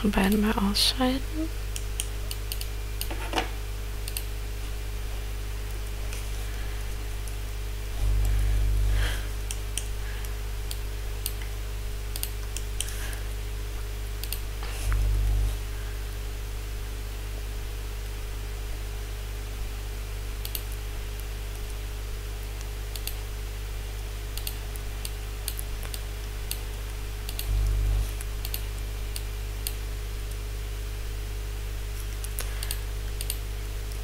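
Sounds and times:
low electrical hum: 0.0 - 34.0
keyboard and mouse clicks: 1.7 - 4.3, 12.1 - 12.9, 20.4 - 21.6.

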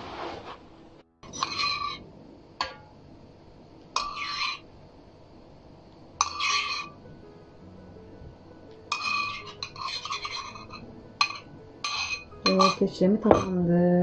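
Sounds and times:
spoon scraping ceramic bowl: 1.2 - 2.0, 4.0 - 4.7, 6.2 - 7.0, 8.9 - 13.5
spoon clinking bowl: 6.2 - 7.0, 8.9 - 13.6.

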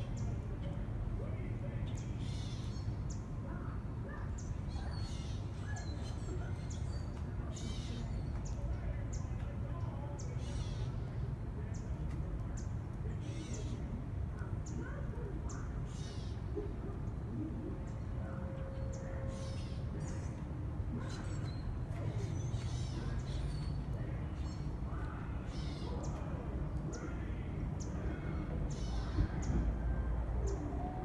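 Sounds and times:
birds chirping: 0.0 - 31.0
low outdoor rumble: 0.0 - 31.0
harsh bird calls: 12.6 - 31.0.

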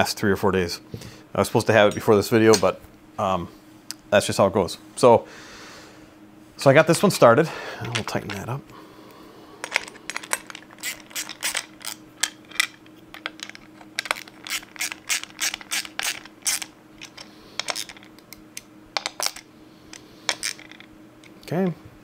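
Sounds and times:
ratchet wrench clicking: 14.0 - 18.0.

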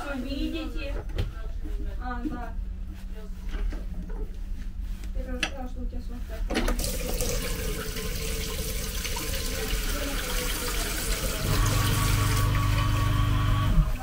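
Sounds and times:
water running from a tap: 6.8 - 14.0
low motor hum: 9.1 - 14.0.

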